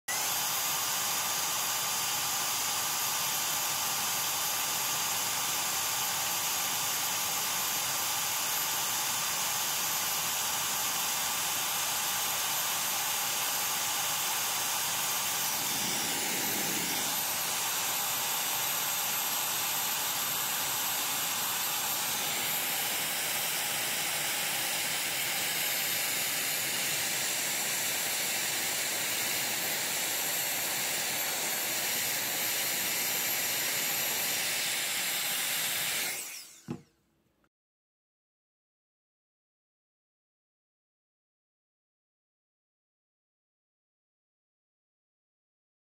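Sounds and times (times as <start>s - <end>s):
electric fan blowing air: 14.2s - 18.8s.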